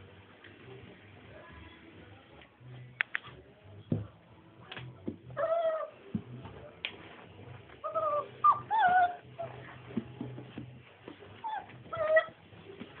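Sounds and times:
puppies whining: 5.3 - 6.0, 7.8 - 9.8, 11.4 - 12.4.

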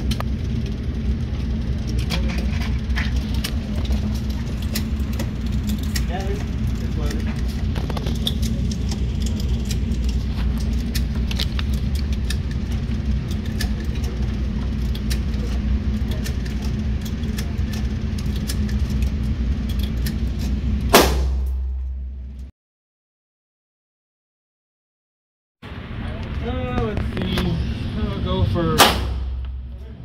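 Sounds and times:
low background rumble: 0.0 - 22.5, 25.6 - 30.0
pistol shot with echo: 20.9 - 21.7, 28.8 - 29.5.

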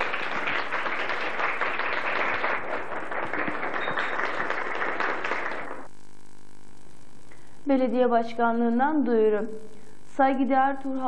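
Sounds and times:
small group applauding: 0.0 - 5.9.

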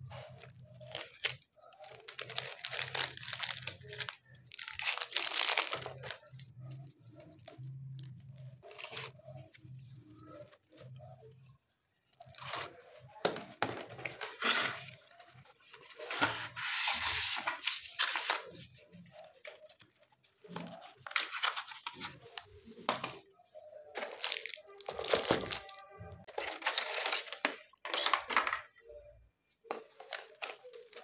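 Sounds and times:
packaging rustling: 0.4 - 6.5.

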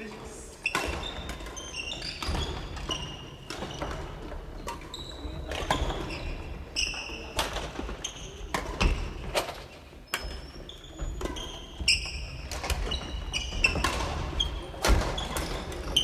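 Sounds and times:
sneakers squeaking on wooden floor: 0.0 - 16.0
rackets striking shuttlecocks: 7.4 - 16.0.

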